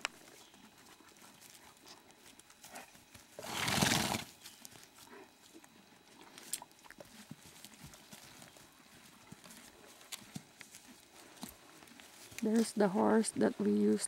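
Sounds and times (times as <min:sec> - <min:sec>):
horse snorting: 0:03.4 - 0:04.3.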